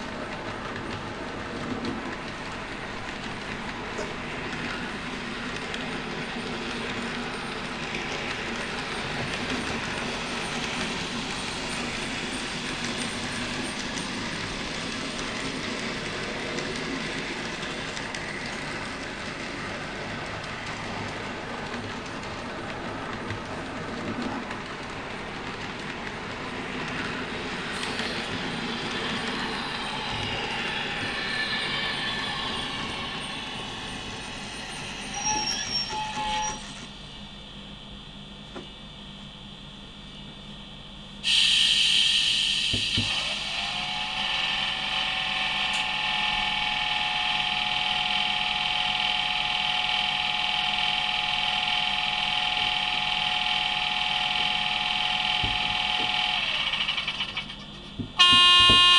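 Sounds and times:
model train wheels on track: 0:00.0 - 0:36.9, 0:41.2 - 0:58.9
electric train sounds from speaker: 0:24.0 - 0:37.6, 0:41.2 - 0:58.9.

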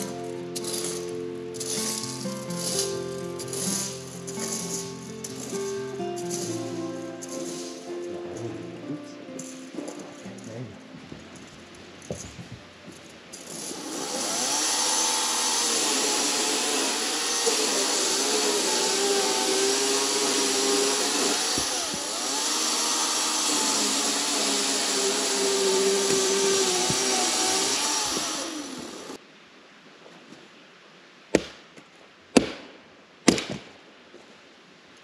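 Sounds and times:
power saw cutting log: 0:00.0 - 0:08.6, 0:13.4 - 0:29.2.

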